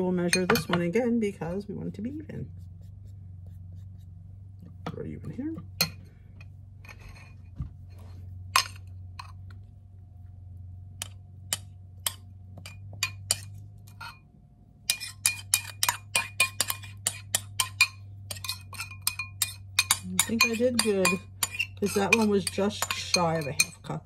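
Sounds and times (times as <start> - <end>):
low steady hum: 0.0 - 24.0
metal spoon clinking glass bowl: 11.5 - 14.2, 14.9 - 24.0.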